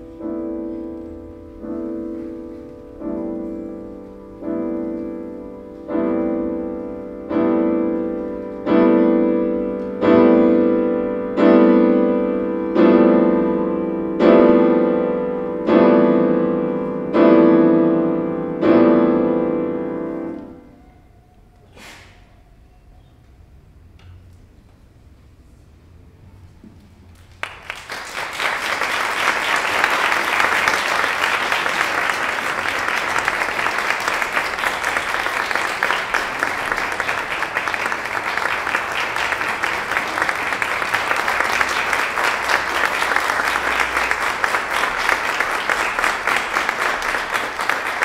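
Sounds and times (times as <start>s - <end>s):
audience applauding: 27.2s - 48.0s.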